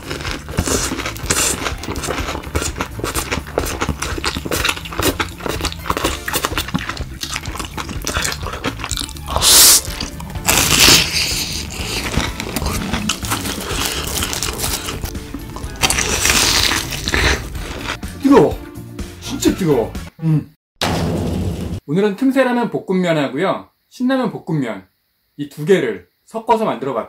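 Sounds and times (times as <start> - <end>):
crunching and chewing food: 0.0 - 18.0
background music: 0.0 - 20.2.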